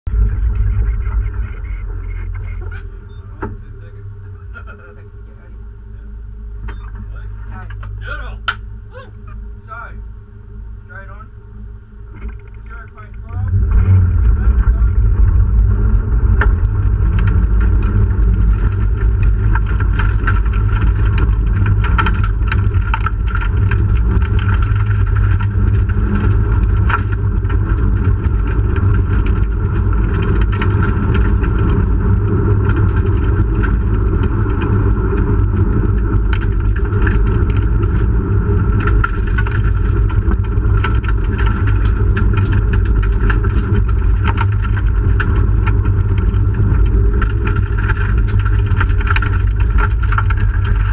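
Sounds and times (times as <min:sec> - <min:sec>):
car engine under load: 0:00.0 - 0:50.9
gravel striking underbody: 0:12.2 - 0:50.9.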